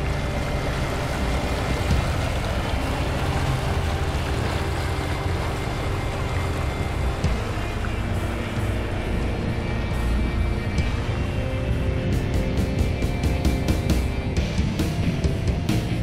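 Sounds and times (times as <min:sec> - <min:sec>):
outboard motor running: 0:00.0 - 0:16.0
water rushing from wake: 0:00.0 - 0:16.0.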